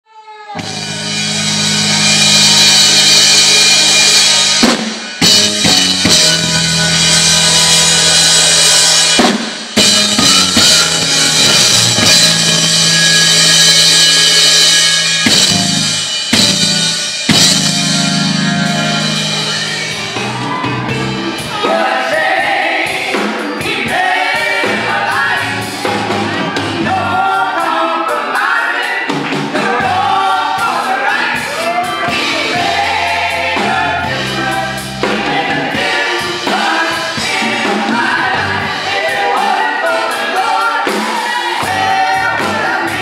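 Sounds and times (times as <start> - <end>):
hard drum strokes: 0.6 - 25.0
keyboard chords: 0.6 - 27.8, 29.3 - 43.0
drum kit with cymbals: 0.6 - 43.0.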